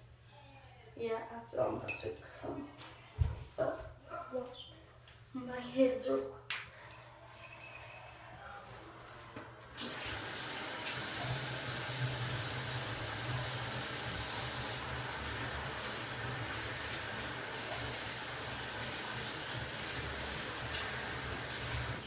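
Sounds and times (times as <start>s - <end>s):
tap water running into sink: 9.8s - 22.0s.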